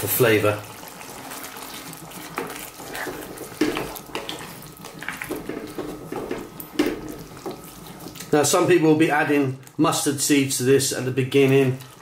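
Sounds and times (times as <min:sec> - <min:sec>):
wooden spoon stirring thick sauce: 0:00.1 - 0:09.5, 0:11.0 - 0:12.0
sauce slopping and squelching: 0:00.6 - 0:08.4.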